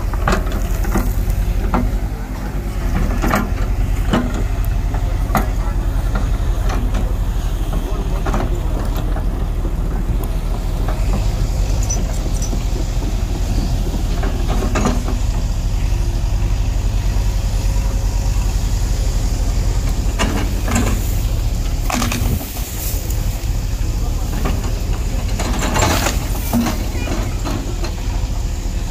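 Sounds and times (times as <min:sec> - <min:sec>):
excavator diesel engine running: 0:00.0 - 0:28.9.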